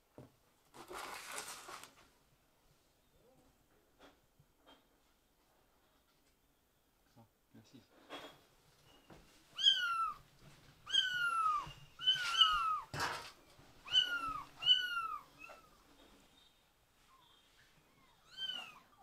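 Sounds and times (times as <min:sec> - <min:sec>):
kitten meowing: 0:09.6 - 0:10.2, 0:10.8 - 0:12.9, 0:13.8 - 0:15.7.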